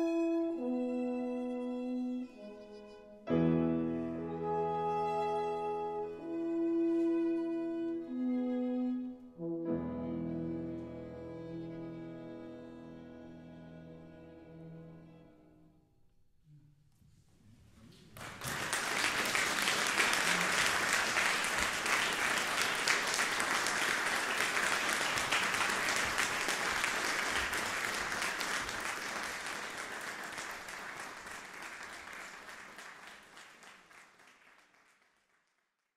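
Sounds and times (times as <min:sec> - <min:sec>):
audience applauding: 0:17.9 - 0:35.9.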